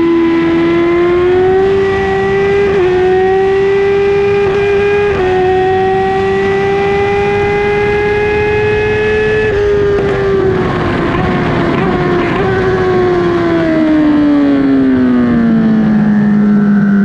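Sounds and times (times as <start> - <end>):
motorcycle engine at high revs: 0.0 - 17.0
wind rushing: 7.3 - 14.2.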